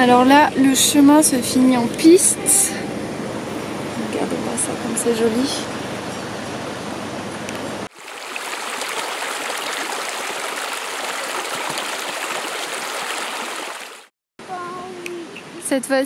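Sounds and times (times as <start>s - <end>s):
outdoor background noise: 0.0s - 16.0s
stream rushing over stones: 7.9s - 14.1s.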